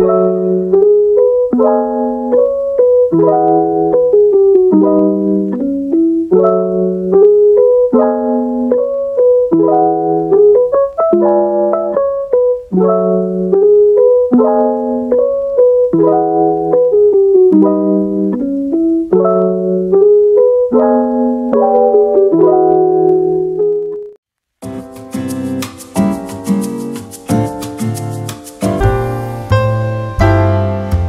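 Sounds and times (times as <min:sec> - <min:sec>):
gentle piano chords: 0:00.0 - 0:31.0.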